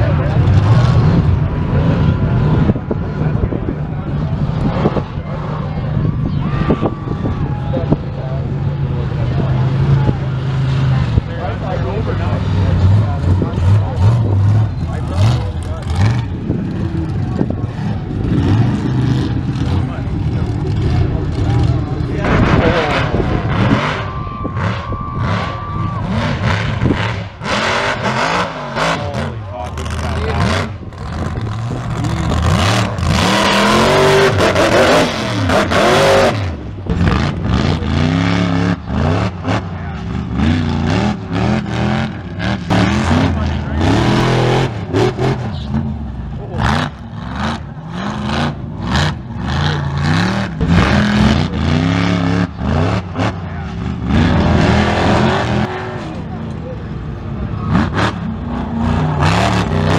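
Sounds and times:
truck engine revving: 0:00.0 - 0:59.9.

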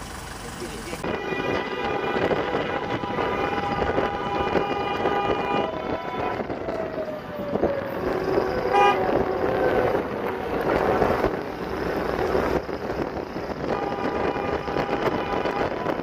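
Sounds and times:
road and engine noise: 0:00.0 - 0:16.0
car horns honking: 0:01.0 - 0:06.4, 0:08.6 - 0:09.2, 0:13.5 - 0:16.0.

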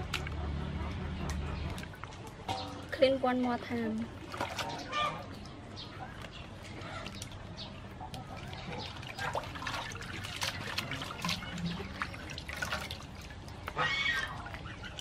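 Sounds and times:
hands splashing in water basin: 0:04.2 - 0:05.6, 0:06.2 - 0:15.0.

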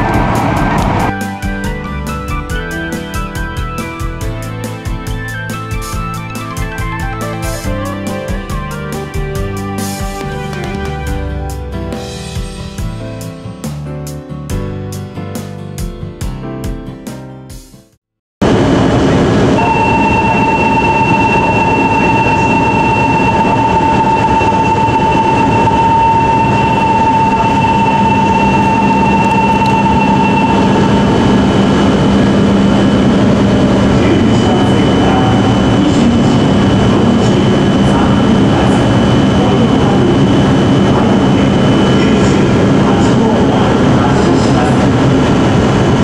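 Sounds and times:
train low hum: 0:00.0 - 0:11.3, 0:18.4 - 0:46.0
electronic departure bell ringing: 0:19.6 - 0:33.4.

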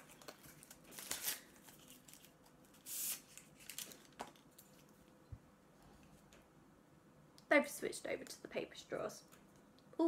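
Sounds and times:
paper wrapper rustling: 0:00.0 - 0:04.9.

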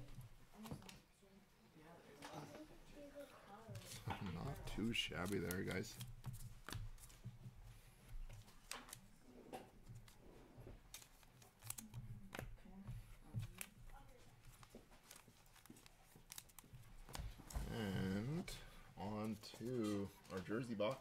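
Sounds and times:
trading cards being flipped: 0:03.8 - 0:07.2, 0:08.3 - 0:09.1, 0:10.8 - 0:12.5, 0:14.4 - 0:17.6.

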